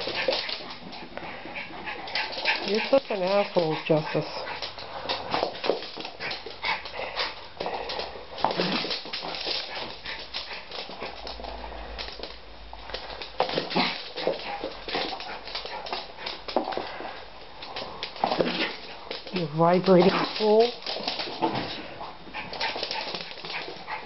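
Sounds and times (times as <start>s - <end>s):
dog noises: 0.0s - 11.9s, 17.7s - 24.0s
dog claws clattering on hard floor: 0.0s - 24.0s.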